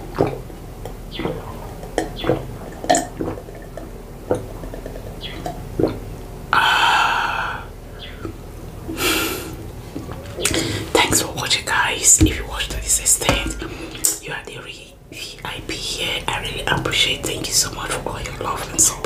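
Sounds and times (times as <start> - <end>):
person gulping water: 0.1 - 6.0, 12.2 - 14.2.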